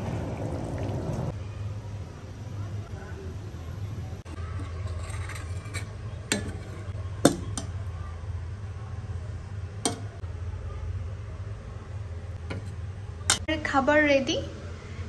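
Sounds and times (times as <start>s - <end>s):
metal ladle clinking on pot: 4.6s - 7.8s, 9.9s - 10.1s.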